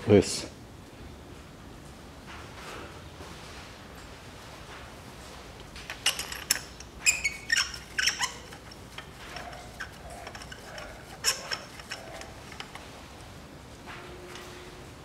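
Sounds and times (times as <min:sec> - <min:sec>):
metal hand tools clinking: 0:05.9 - 0:12.9.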